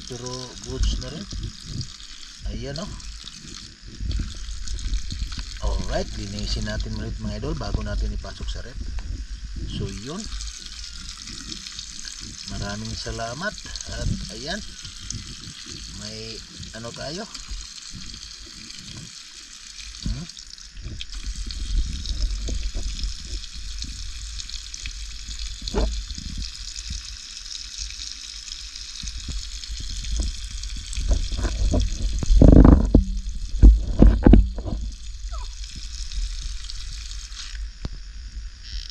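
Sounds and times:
water pouring from a pipe: 0:00.0 - 0:38.0
water splashing onto fish: 0:09.8 - 0:37.5.

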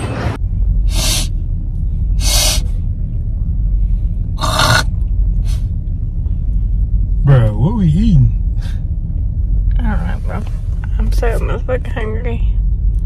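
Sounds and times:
car rumbling inside cabin: 0:00.0 - 0:13.0
short hissing bursts: 0:02.2 - 0:02.7.

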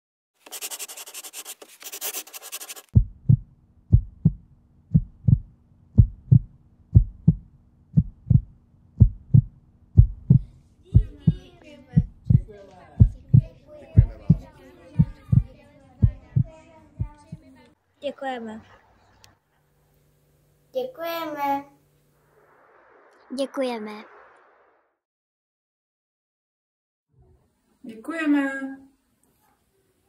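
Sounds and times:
heartbeat: 0:02.9 - 0:11.4, 0:12.0 - 0:17.5
hissing crackling noise: 0:21.7 - 0:25.0.

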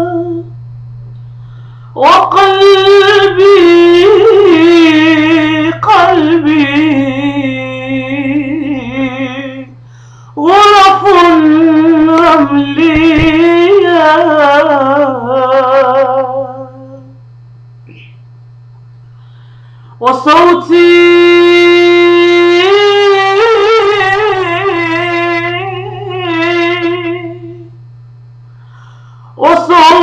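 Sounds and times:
woman singing ornamented phrases: 0:00.0 - 0:00.5, 0:02.0 - 0:09.8, 0:10.4 - 0:17.2, 0:20.0 - 0:27.8, 0:29.4 - 0:30.0
low hum: 0:00.0 - 0:30.0.

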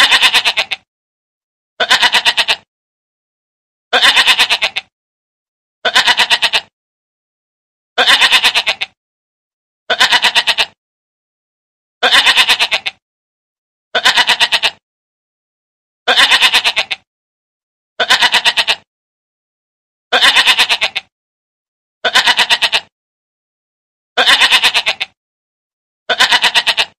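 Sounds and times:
goat bleating: 0:00.0 - 0:00.9, 0:01.8 - 0:02.7, 0:03.9 - 0:04.9, 0:05.8 - 0:06.7, 0:08.0 - 0:09.0, 0:09.9 - 0:10.8, 0:12.0 - 0:13.0, 0:14.0 - 0:14.8, 0:16.1 - 0:17.1, 0:18.0 - 0:18.9, 0:20.1 - 0:21.1, 0:22.0 - 0:22.9, 0:24.2 - 0:25.2, 0:26.1 - 0:26.9.

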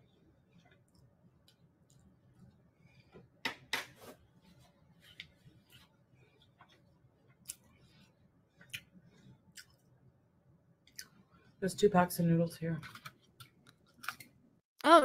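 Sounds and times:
person chewing noodles: 0:07.3 - 0:10.0.

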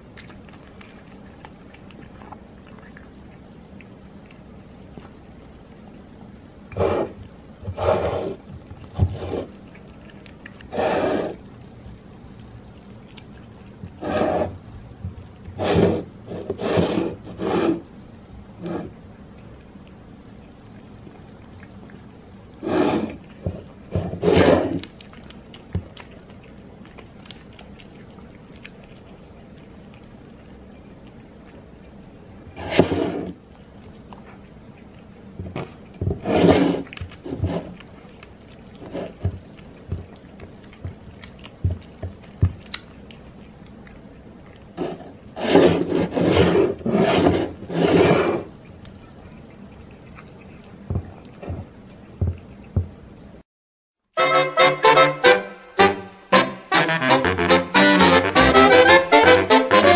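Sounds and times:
cats eating clicks: 0:00.1 - 0:05.2, 0:06.2 - 0:10.7, 0:24.8 - 0:32.5, 0:36.8 - 0:44.8
soft low thumps: 0:50.8 - 0:53.1.

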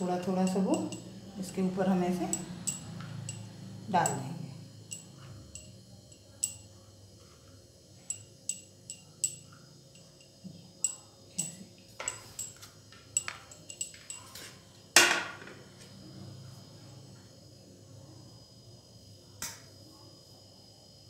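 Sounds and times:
crockery clicking and tapping: 0:08.1 - 0:15.5.

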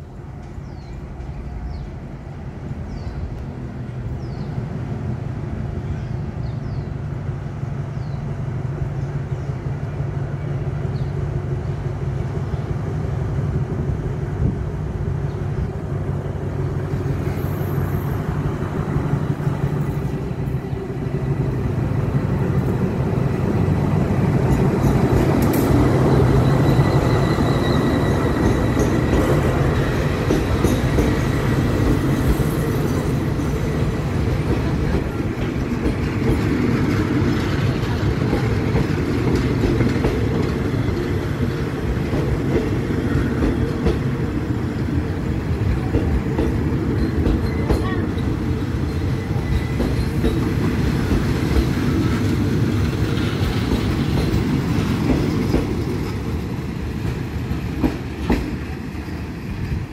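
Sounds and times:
diesel locomotive drone: 0:00.0 - 0:59.9
train wheels on rails: 0:00.0 - 0:59.9
faint high squeal: 0:25.8 - 0:28.8.

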